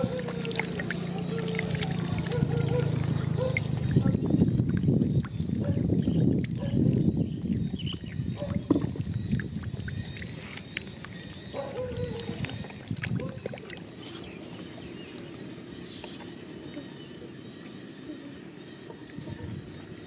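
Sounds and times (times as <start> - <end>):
fish splashing in muddy water: 0.0 - 17.5.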